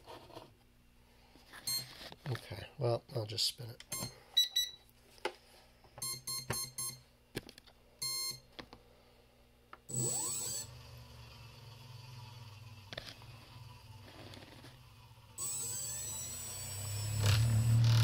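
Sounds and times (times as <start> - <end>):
electric motor whine and hum: 9.9 - 18.0.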